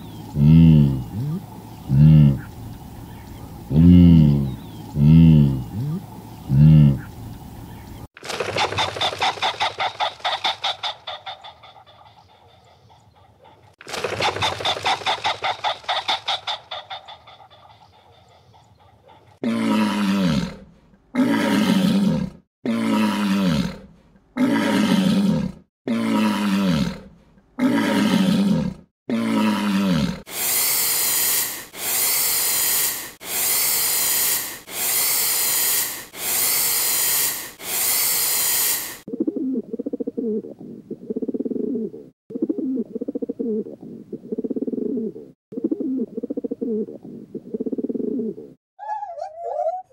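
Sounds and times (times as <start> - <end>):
deep falling animal calls: 0.0 - 2.6, 3.4 - 7.2, 8.2 - 20.6
soft low cooing: 0.3 - 2.6, 3.7 - 7.2
fast pulsed animal call: 8.4 - 19.4, 30.3 - 39.1
harsh noisy animal calls: 8.5 - 20.5, 27.6 - 39.1.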